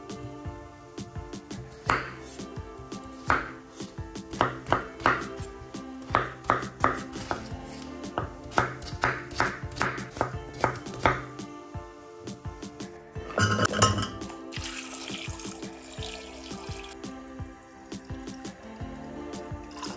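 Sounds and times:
background music: 0.0s - 19.9s
knife chopping on cutting board: 1.8s - 2.4s, 3.2s - 5.4s, 6.0s - 11.3s.

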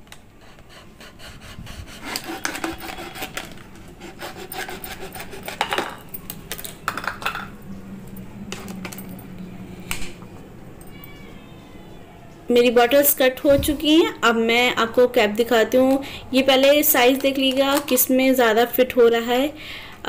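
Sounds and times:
plastic bottle crackling as cut: 1.9s - 6.0s.

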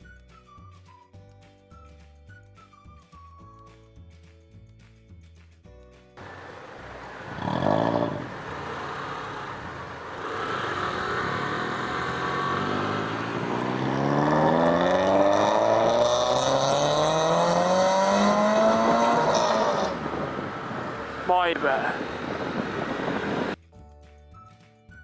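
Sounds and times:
scooter engine accelerating: 6.2s - 21.3s, 21.9s - 23.6s.

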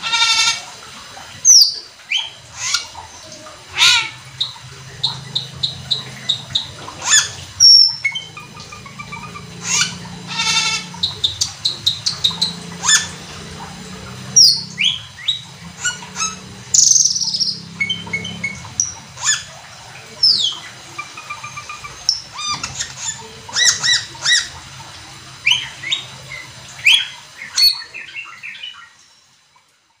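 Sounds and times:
starling singing: 1.5s - 24.6s.

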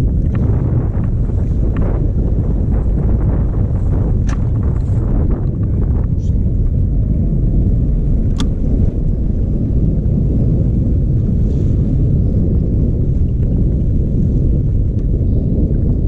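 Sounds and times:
motorboat engine rumble: 0.0s - 16.0s
wind buffeting microphone: 0.0s - 16.0s
sharp click: 4.2s - 4.5s, 8.3s - 8.6s.

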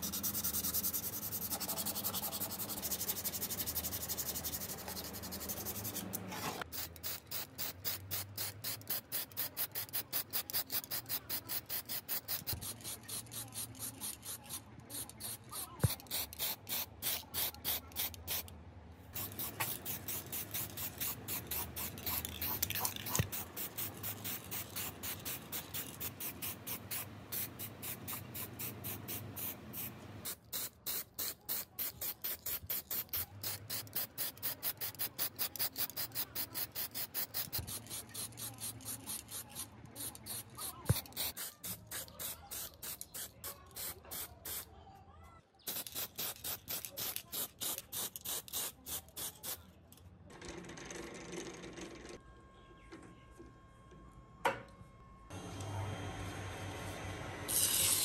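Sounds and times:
spray can hissing: 6.7s - 18.5s, 19.1s - 44.7s, 45.7s - 49.6s, 57.5s - 58.0s.

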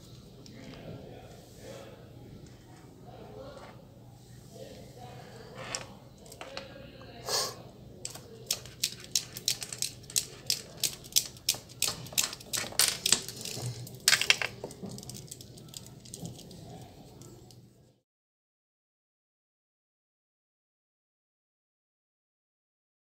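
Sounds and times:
prayer beads clicking: 8.0s - 17.6s.

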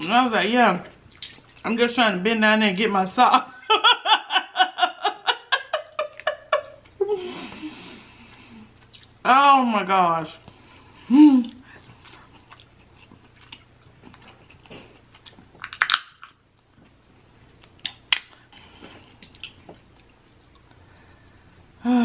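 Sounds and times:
chewing: 0.8s - 1.6s, 11.6s - 16.0s, 16.8s - 20.8s
crab shell cracking: 15.6s - 16.4s.

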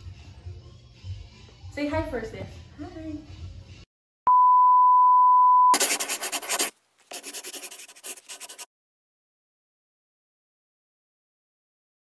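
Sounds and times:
electronic beep tone: 4.3s - 5.8s
scratchy crackling noise: 5.8s - 8.7s.

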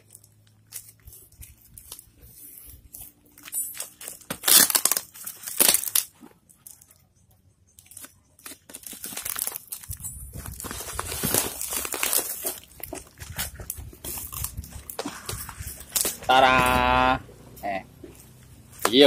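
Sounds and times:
packing tape ripping: 0.0s - 6.9s, 7.8s - 16.7s
cardboard crinkling rustles: 7.8s - 16.4s.

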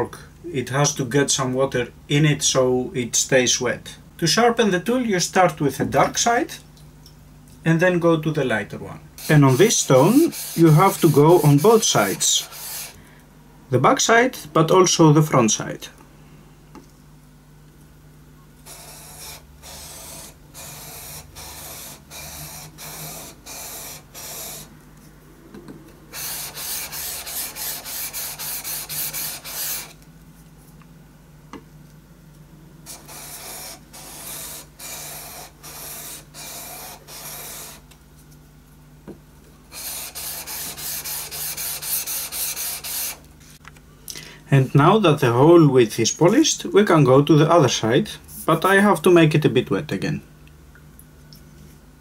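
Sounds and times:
blade scraping on whetstone: 9.2s - 13.0s.

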